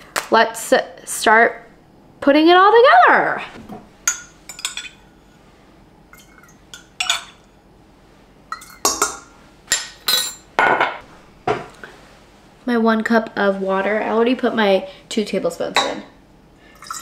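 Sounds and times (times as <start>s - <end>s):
metal spoon clinking against bowl: 4.1s - 5.0s, 6.2s - 7.5s.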